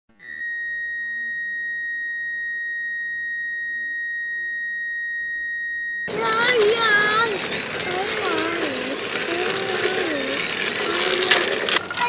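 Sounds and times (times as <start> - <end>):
high-pitched electronic beep tone: 0.1 - 6.1.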